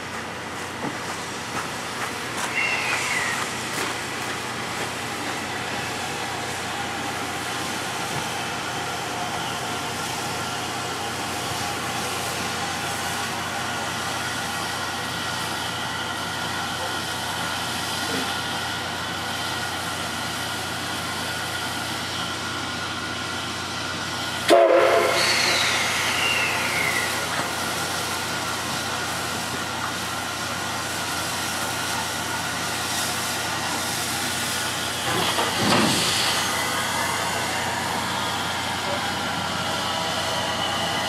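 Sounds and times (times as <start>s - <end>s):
steam hissing: 1.0s - 14.7s, 24.4s - 41.0s
steam whistle toot: 24.5s - 27.2s.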